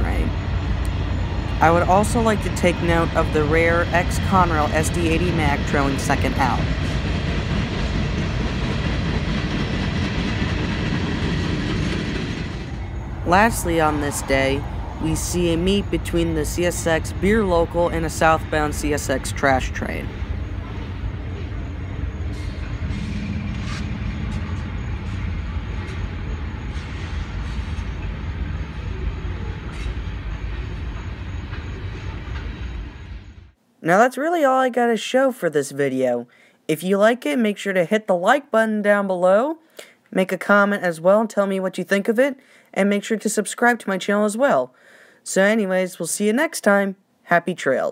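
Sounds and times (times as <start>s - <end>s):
diesel locomotive rumble: 0.0s - 33.6s
train wheels rolling on rails: 0.0s - 33.6s.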